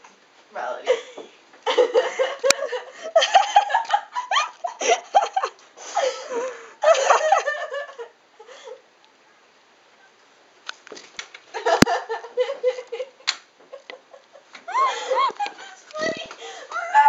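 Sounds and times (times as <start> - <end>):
girls laughing and giggling: 0.8 - 8.9, 11.5 - 17.0.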